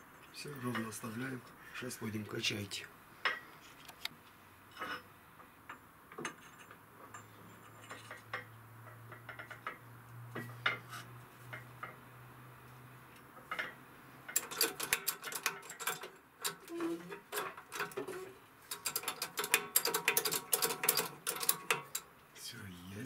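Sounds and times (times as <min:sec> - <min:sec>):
metallic clicks and clinks: 0:13.5 - 0:22.1.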